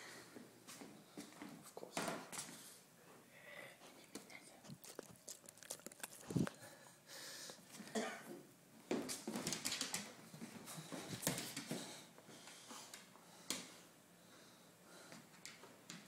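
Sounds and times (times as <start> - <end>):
dog snuffling and snorting: 4.6 - 6.7.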